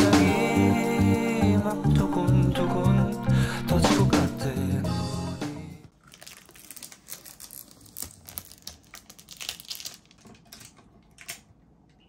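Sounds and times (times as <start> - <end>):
plastic wrap crinkling: 5.9 - 11.5.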